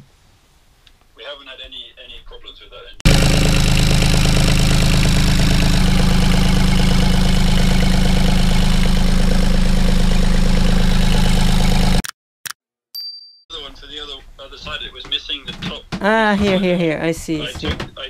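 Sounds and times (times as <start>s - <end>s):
boat engine idling: 3.1s - 12.0s.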